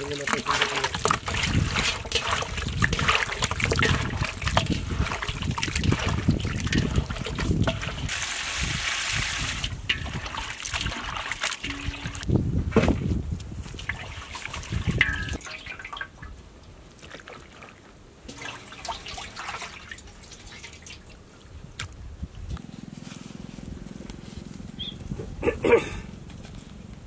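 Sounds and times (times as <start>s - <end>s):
wet squelching of raw meat: 0.0s - 8.1s.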